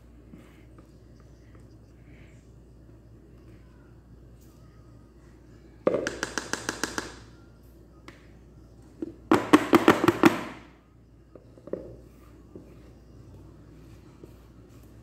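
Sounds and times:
cake pan knocking on tiled counter: 5.9s - 7.2s.

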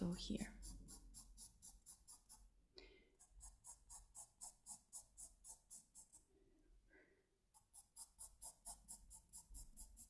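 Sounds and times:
pencil scratching on paper: 0.2s - 2.5s, 3.2s - 6.3s, 7.5s - 10.0s.

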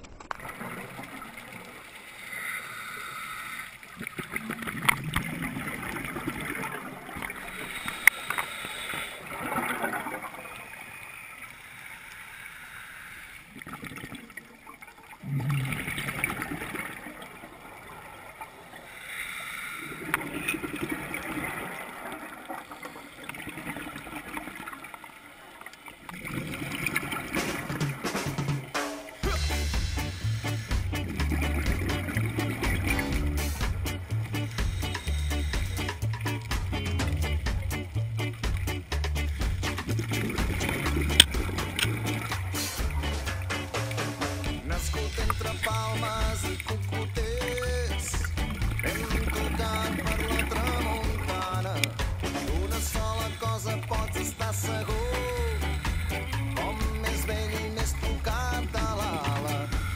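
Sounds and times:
gurgling exhaled bubbles: 0.0s - 11.7s, 13.5s - 19.1s, 19.8s - 59.9s
diver breathing through regulator: 2.0s - 5.1s, 7.2s - 9.9s, 11.5s - 13.6s, 18.8s - 21.3s, 29.2s - 36.6s, 55.2s - 56.7s, 59.3s - 59.9s.

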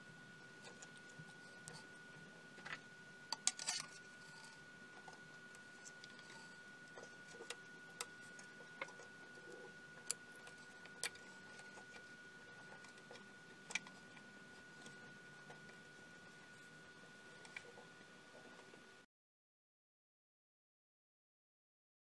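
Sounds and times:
handling wires in metal chassis: 2.6s - 14.2s.

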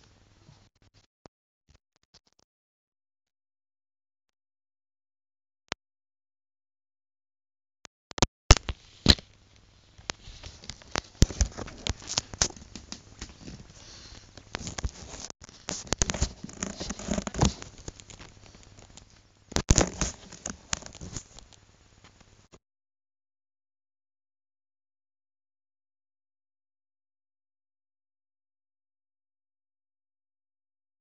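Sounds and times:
device handling noise over paper: 10.0s - 21.5s.

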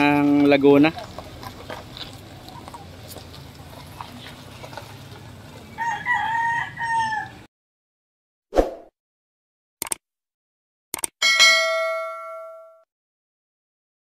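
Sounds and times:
rooster crowing: 5.7s - 7.5s.

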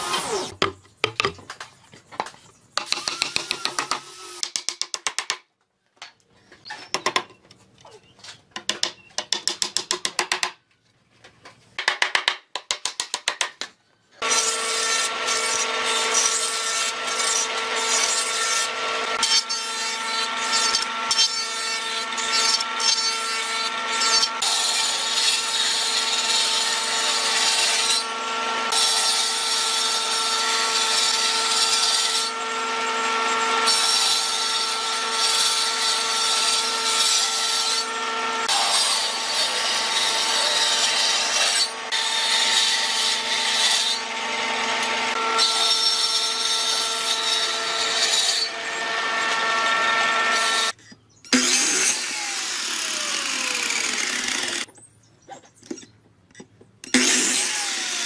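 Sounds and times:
power tool whining: 14.2s - 54.7s, 56.9s - 58.0s.

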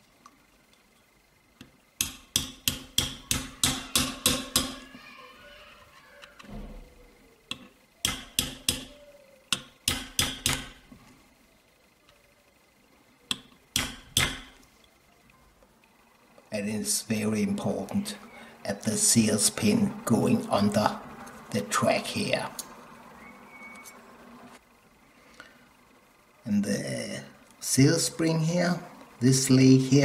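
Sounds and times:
sharp metal taps: 2.0s - 4.8s, 7.5s - 8.9s, 9.5s - 10.8s, 13.3s - 14.6s.

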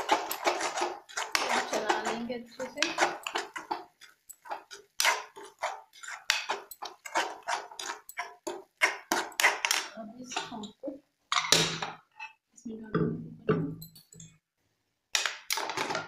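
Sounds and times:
metal spoon scraping a pan: 0.0s - 12.4s.

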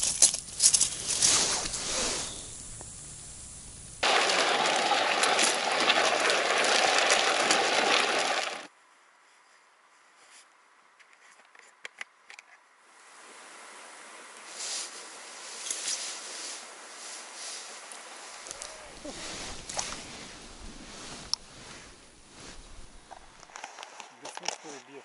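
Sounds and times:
sleds scraping over ice: 4.0s - 8.7s, 18.4s - 24.8s
faint clicks and rustles: 14.3s - 25.0s.

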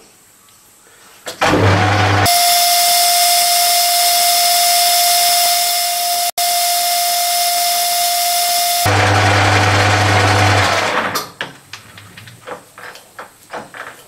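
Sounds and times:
metal lathe cutting with whine: 1.7s - 11.0s.

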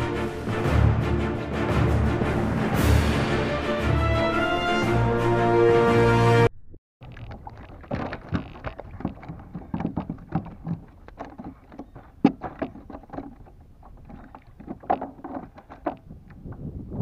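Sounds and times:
gear knocking against kayak hull: 7.0s - 16.6s.

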